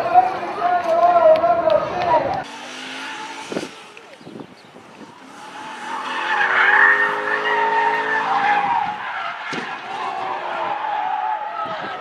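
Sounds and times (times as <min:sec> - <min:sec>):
car engine at high revs: 0:02.4 - 0:10.4
tires squealing: 0:02.4 - 0:12.0.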